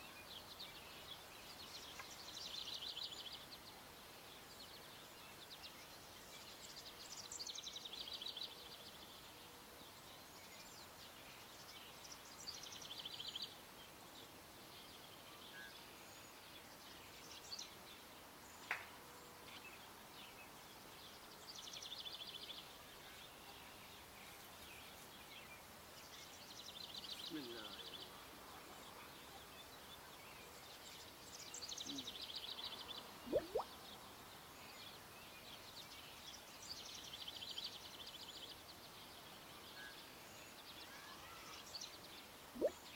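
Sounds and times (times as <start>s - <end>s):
outdoor background hiss: 0.0s - 42.9s
songbird singing high notes: 33.3s - 33.7s, 42.6s - 42.8s.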